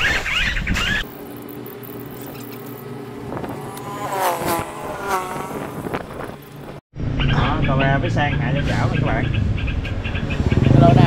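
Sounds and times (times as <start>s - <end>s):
motorbike engine revving: 0.8s - 6.8s, 9.8s - 11.0s.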